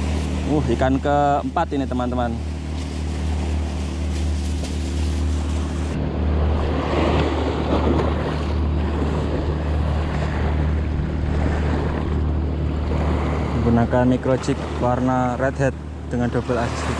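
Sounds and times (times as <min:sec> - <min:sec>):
wind rumble on microphone: 0:00.0 - 0:16.9
waves breaking on rocks: 0:06.5 - 0:15.4.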